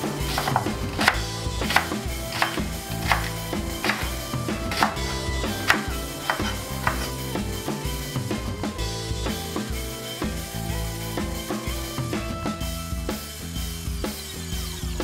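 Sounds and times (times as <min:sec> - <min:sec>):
background music: 0:00.0 - 0:15.0
knife chopping on wooden board: 0:00.3 - 0:07.2.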